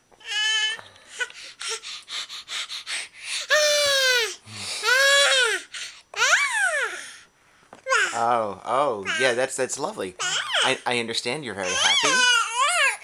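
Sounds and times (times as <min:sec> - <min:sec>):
baby breathy huffs: 0:01.0 - 0:06.0
baby squealing: 0:03.5 - 0:07.0, 0:09.0 - 0:09.4, 0:10.2 - 0:10.8, 0:11.6 - 0:13.0.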